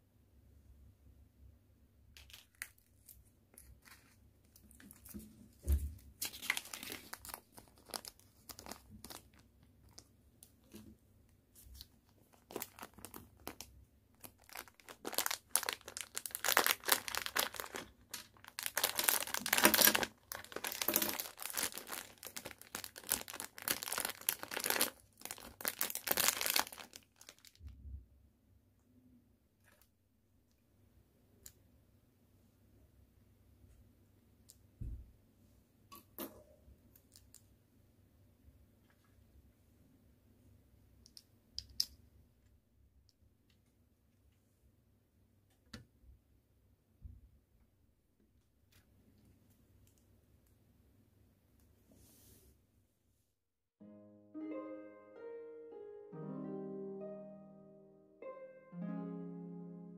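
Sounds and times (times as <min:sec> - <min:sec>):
plastic bag crinkling: 0:02.2 - 0:05.1, 0:06.1 - 0:10.1, 0:11.8 - 0:27.6
thump: 0:05.6 - 0:06.0, 0:34.8 - 0:35.1.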